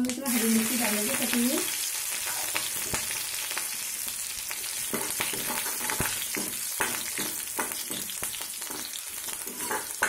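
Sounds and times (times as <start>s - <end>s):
spices sizzling in hot oil: 0.0s - 10.0s
ladle scraping metal pan: 8.6s - 10.0s.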